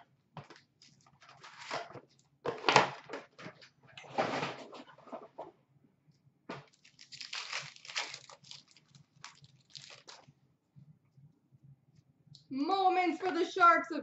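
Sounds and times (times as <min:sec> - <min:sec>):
paper wrappers crinkling: 0:06.6 - 0:10.3.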